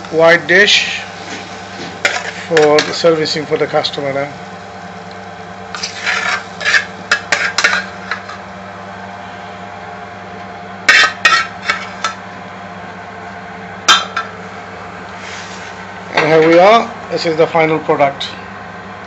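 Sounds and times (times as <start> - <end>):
steady hum: 0.0 - 19.0
metal utensil scraping pan: 2.0 - 3.0, 5.8 - 8.4, 10.9 - 12.1.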